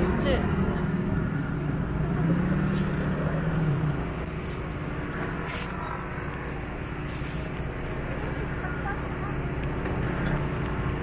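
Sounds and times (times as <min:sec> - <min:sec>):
street traffic: 0:00.0 - 0:11.0
vehicle engine hum: 0:00.0 - 0:11.0.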